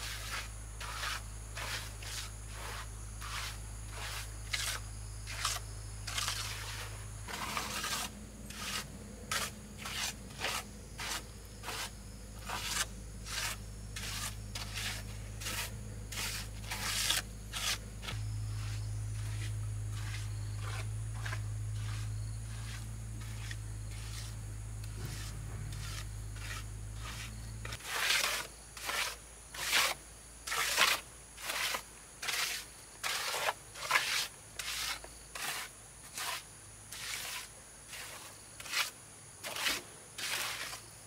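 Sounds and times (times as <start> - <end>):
short scraping strokes: 0.0 - 40.8
low steady hum: 2.9 - 27.8.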